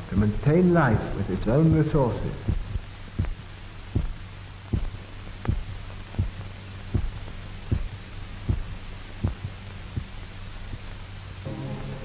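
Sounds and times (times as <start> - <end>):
steady low hum: 0.0 - 12.0
heart beating: 1.7 - 11.0.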